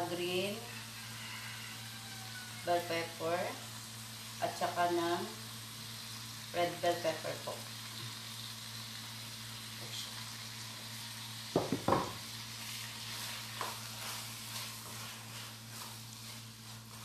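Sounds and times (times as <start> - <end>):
food sizzling in a wok: 0.0 - 17.0
spatula stirring scrapes: 12.6 - 17.0.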